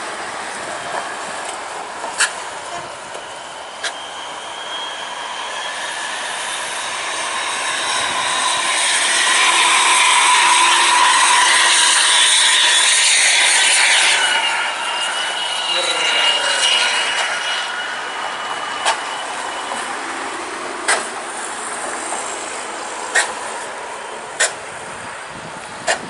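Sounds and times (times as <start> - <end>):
passing vehicles on highway: 0.0 - 4.0, 17.1 - 26.0.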